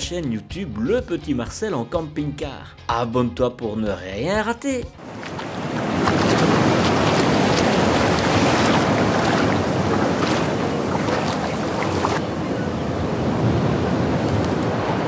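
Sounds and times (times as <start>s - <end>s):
waves washing onto beach: 5.0s - 15.0s
wind: 5.0s - 15.0s.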